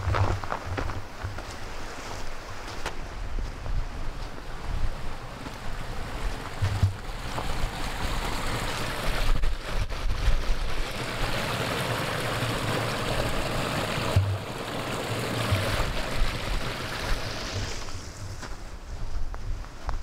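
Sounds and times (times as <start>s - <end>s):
brook trickling over stones: 5.5s - 18.2s
low thuds: 6.5s - 7.5s.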